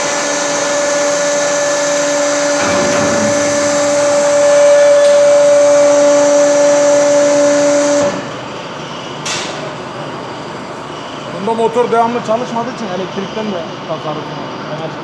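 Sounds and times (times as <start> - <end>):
hydraulic press motor humming: 0.2 - 10.8.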